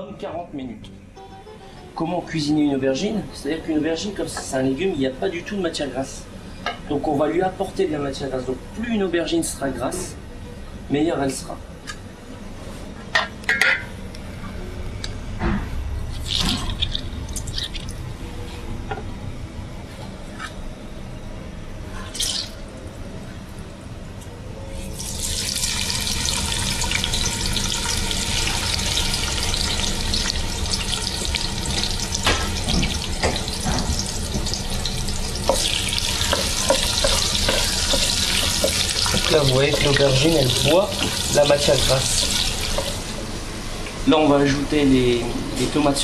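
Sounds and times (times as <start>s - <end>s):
food sizzling in hot oil: 24.8s - 43.2s.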